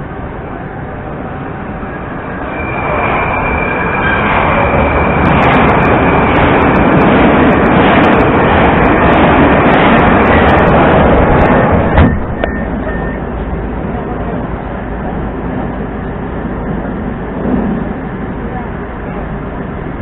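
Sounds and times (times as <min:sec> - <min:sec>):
thin high whine: 0:00.0 - 0:06.8
metro train rumble and wheel noise: 0:00.0 - 0:20.0.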